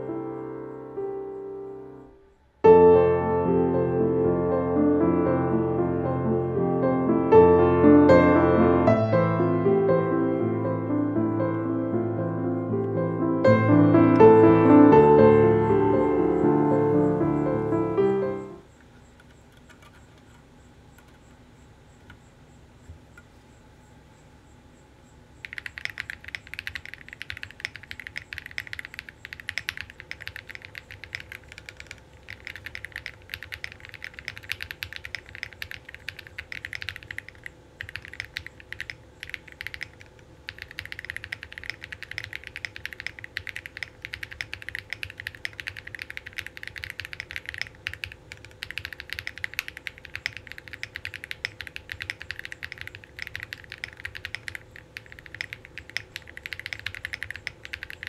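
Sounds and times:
mechanical keyboard typing: 19.2 - 20.4, 25.4 - 58.0.

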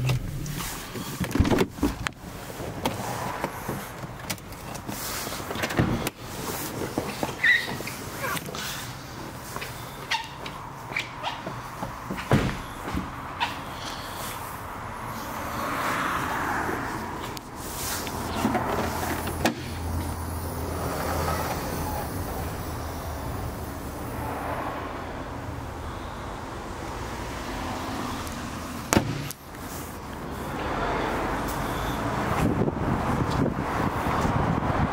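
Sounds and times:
car engine idling: 0.0 - 2.8, 19.0 - 24.2.

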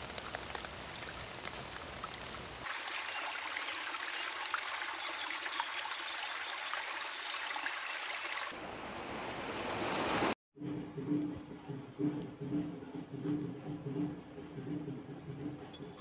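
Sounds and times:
stream running over stones: 0.0 - 10.4.

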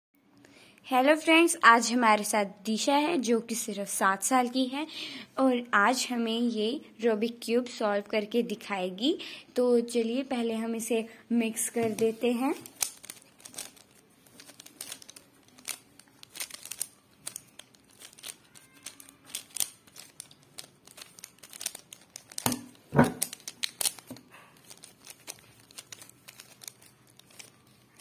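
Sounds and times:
puzzle cube clicking and rattling: 11.9 - 28.0.

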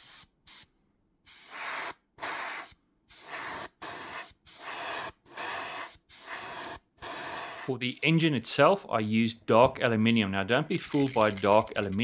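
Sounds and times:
airbrush spraying hiss: 0.0 - 0.7, 1.3 - 7.8.

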